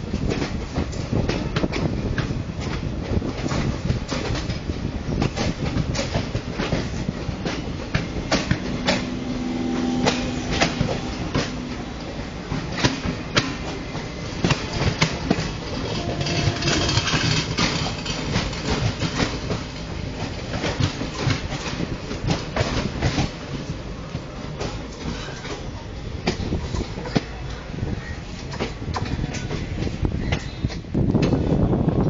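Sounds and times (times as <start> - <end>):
train rumble: 0.0 - 32.0
train wheels clattering over rail joints: 0.0 - 32.0.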